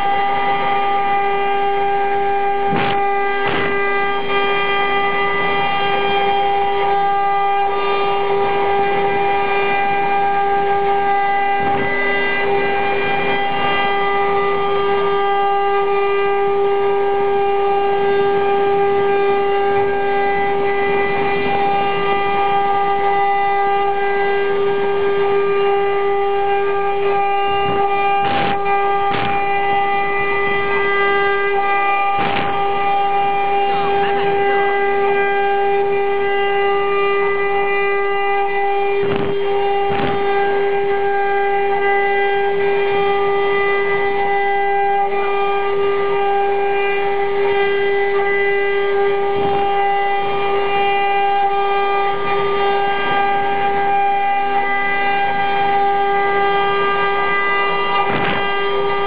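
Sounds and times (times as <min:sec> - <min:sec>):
wood router high whine: 0:00.0 - 0:59.0.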